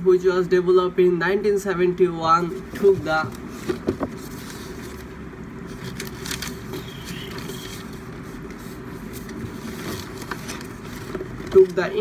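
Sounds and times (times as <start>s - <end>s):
room hum and hiss: 0.0s - 12.0s.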